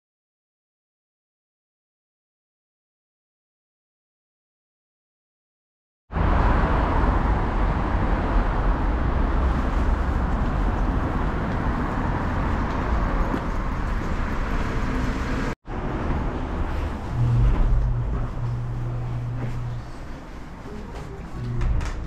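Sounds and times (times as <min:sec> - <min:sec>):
train running at speed: 0:06.2 - 0:22.0
low hum: 0:15.7 - 0:22.0.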